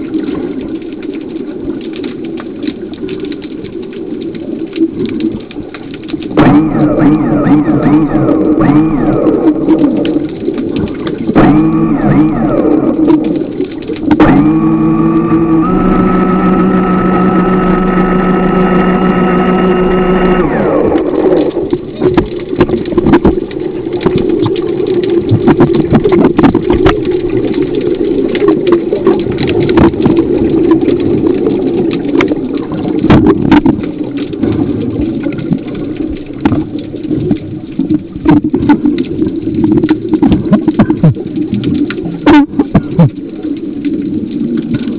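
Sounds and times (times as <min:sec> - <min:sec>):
underwater bubbling: 0:00.0 - 0:44.9
electric motor whine: 0:06.4 - 0:09.8, 0:11.4 - 0:13.0, 0:14.2 - 0:21.5.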